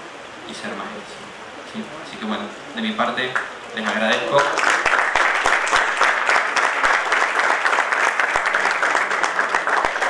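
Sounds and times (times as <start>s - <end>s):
audience applauding: 3.3s - 10.0s.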